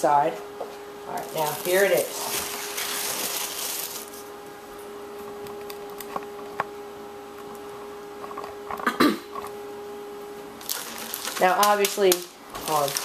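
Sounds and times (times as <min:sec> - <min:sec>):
faint steady hum: 0:00.0 - 0:13.0
foam packaging rustling: 0:01.2 - 0:04.3, 0:10.6 - 0:13.0.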